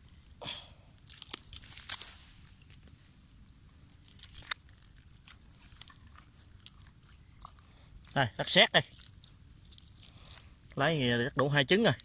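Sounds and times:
grass and leaves rustling: 0.0 - 11.4
hand digging in wet clay: 1.0 - 2.9.

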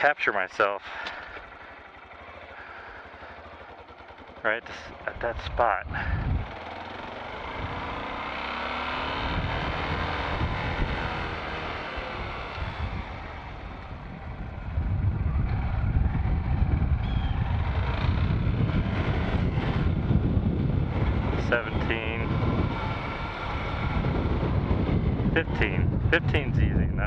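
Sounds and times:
motorcycle engine revving: 0.8 - 27.0
wind rumbling on microphone: 5.2 - 8.1, 9.1 - 27.0.

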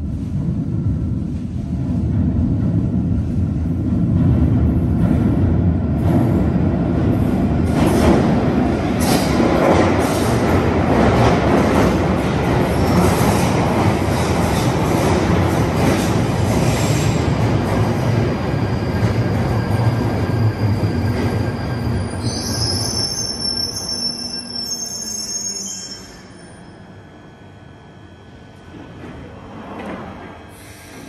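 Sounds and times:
train wheels rolling on rail: 0.2 - 23.0
train brakes squealing: 18.5 - 26.9.

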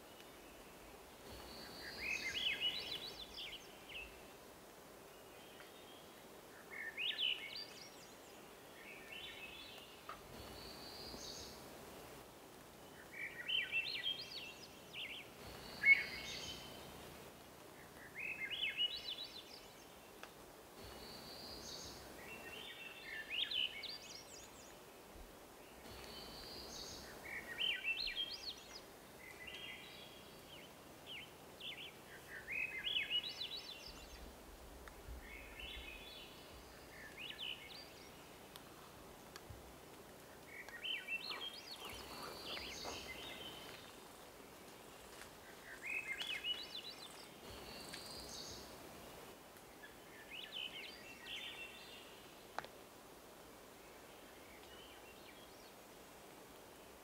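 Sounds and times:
faint steady hiss: 0.0 - 57.0.

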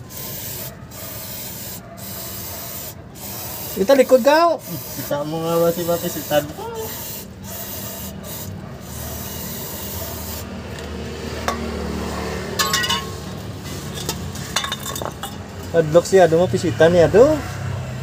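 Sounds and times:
aerosol spray hissing: 0.0 - 10.5
rag rubbing metal: 0.0 - 10.6.

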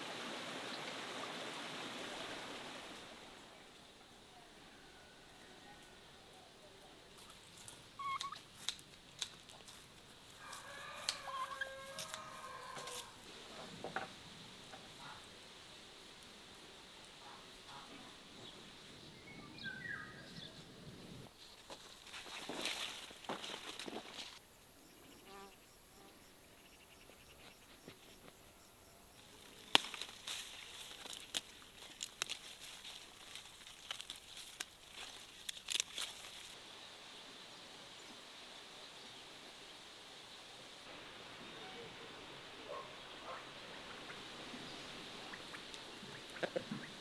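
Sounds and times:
faint field ambience: 0.0 - 47.0
fowl calling: 8.0 - 8.4, 10.4 - 13.1
flying insect buzzing: 25.0 - 26.4.

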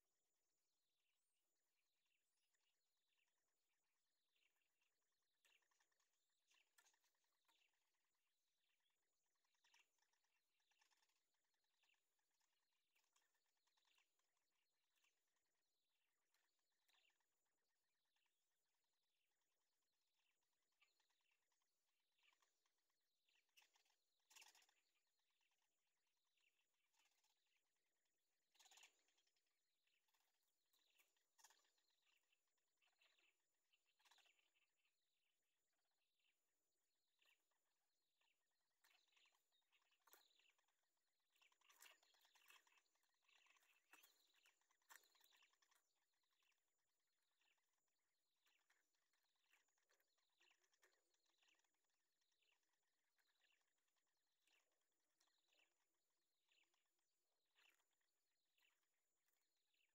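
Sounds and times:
bird chicks chirping: 5.3 - 7.9, 9.4 - 11.2, 16.3 - 17.2, 23.3 - 25.0, 26.4 - 27.4, 28.5 - 34.8, 38.2 - 46.6, 48.4 - 51.7, 53.2 - 53.6, 54.4 - 55.6, 57.5 - 58.0.

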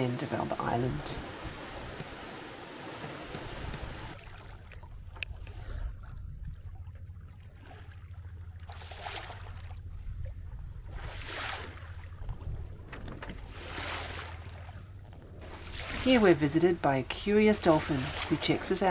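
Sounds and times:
water rushing along boat hull: 0.0 - 18.9
low rumble: 4.7 - 17.6.

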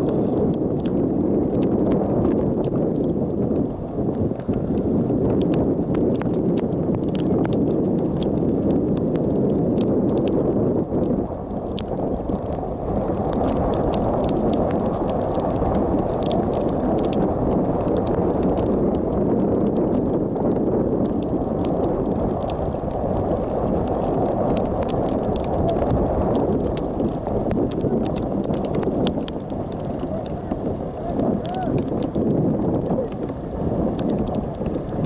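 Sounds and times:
raindrops striking camera: 0.0 - 35.0
wind buffeting microphone: 0.0 - 35.0.

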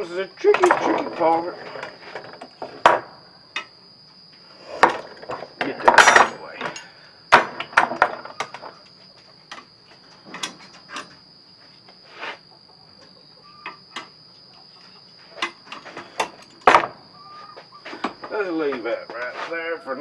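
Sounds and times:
steel trap parts clinking: 5.6 - 7.0, 10.1 - 11.2.

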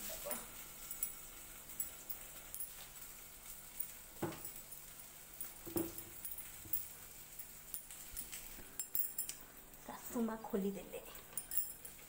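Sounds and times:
dishes knocking: 5.7 - 6.1.

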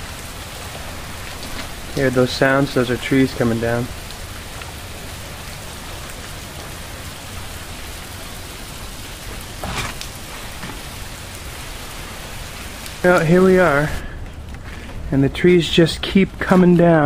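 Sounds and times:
freezing rain hissing on ice: 0.0 - 17.0.

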